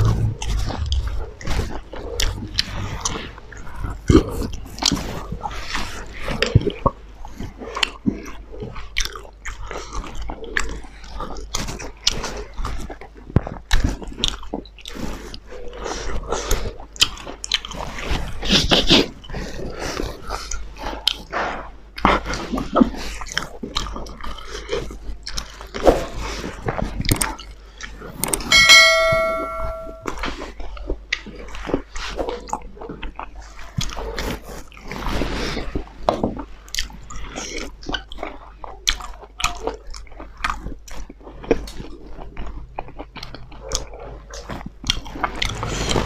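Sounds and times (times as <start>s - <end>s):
chewing and lip smacks: 0.0s - 18.1s, 22.0s - 27.6s, 31.1s - 35.3s, 36.1s - 46.0s
steel dish ringing: 28.5s - 30.1s.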